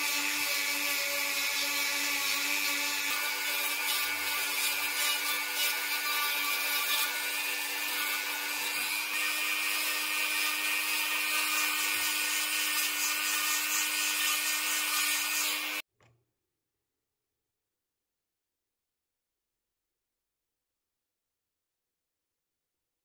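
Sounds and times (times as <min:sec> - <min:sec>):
rotary tool sanding with whine: 0:00.0 - 0:15.8.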